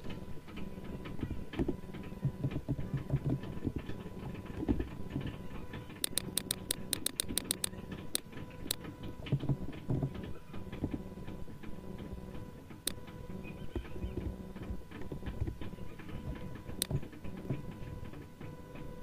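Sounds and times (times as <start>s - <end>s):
faint steady hum: 0.0s - 19.0s
keyboard and mouse clicking: 5.9s - 9.5s, 16.3s - 17.5s.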